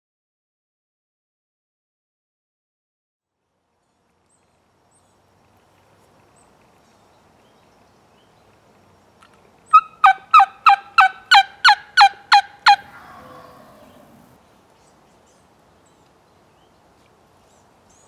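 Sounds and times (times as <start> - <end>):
turkey call yelps: 9.7 - 14.2.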